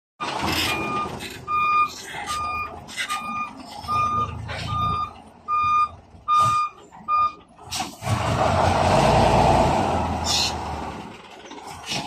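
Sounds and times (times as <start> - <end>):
truck reversing alarm beeping: 0.2 - 7.5
diesel engine running: 0.2 - 12.0.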